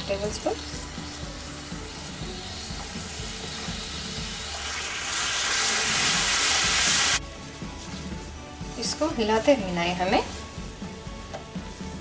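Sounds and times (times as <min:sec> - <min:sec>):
syrup sizzling in a pan: 0:00.0 - 0:09.0.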